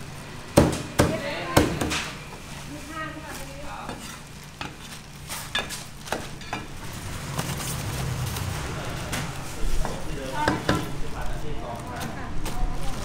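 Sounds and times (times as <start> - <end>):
low hum: 6.7 - 10.1.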